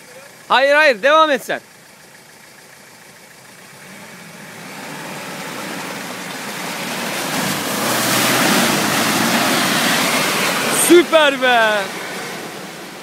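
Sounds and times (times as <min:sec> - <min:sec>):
tyres splashing muddy water: 0:04.6 - 0:13.0.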